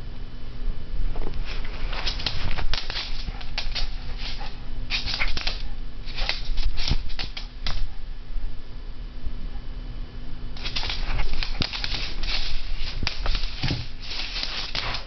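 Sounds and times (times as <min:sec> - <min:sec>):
dog scuffling with a toy: 0:01.4 - 0:07.9, 0:10.6 - 0:15.0.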